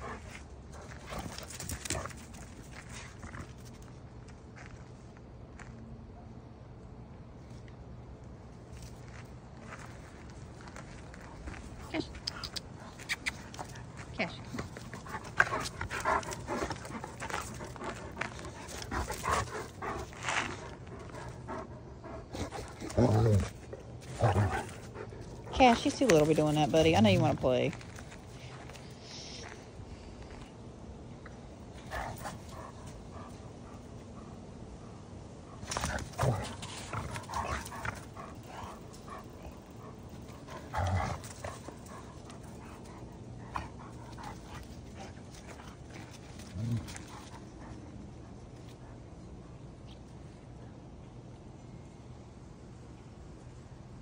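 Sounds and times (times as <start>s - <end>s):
dog panting: 11.3s - 23.2s, 31.8s - 49.0s.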